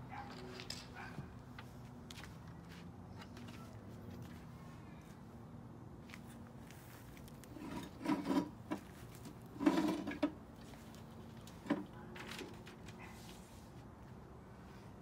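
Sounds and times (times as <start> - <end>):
plastic rubbing and scraping: 7.4 - 10.4.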